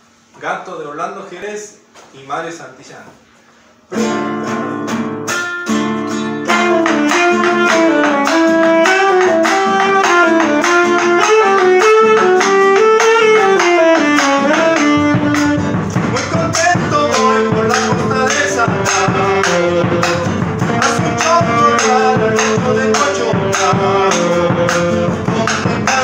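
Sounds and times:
acoustic guitar strumming: 3.9 - 26.0
tenor saxophone melody: 6.3 - 26.0
bass drum: 6.5 - 26.0.

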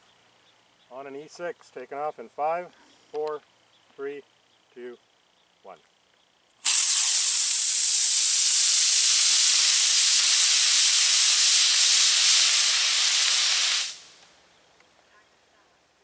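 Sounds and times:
rocket motor hissing: 6.6 - 14.2.

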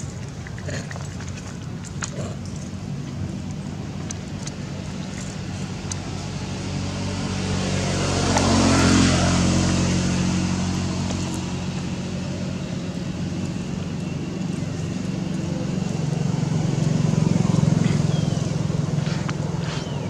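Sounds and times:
vehicle engine passing by: 0.0 - 20.0.

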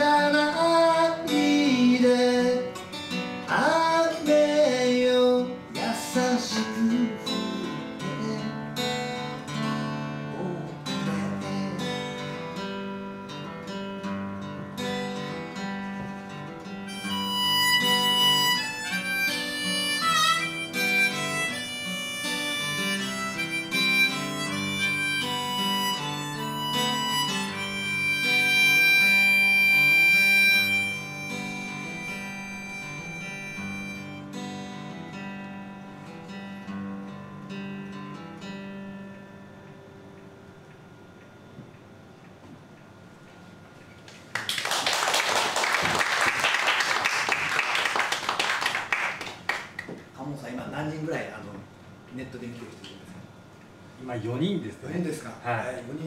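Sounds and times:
acoustic guitar chords: 0.0 - 43.3
harmonica: 14.9 - 36.1.

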